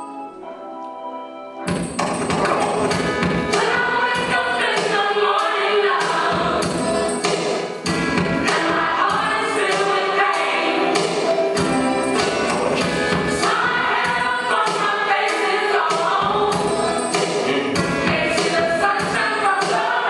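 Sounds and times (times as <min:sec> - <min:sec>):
gospel choir singing: 0:02.4 - 0:20.0.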